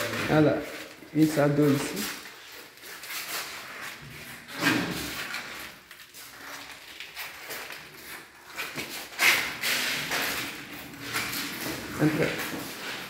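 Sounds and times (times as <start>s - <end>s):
footsteps on tiled floor: 0.0s - 13.0s.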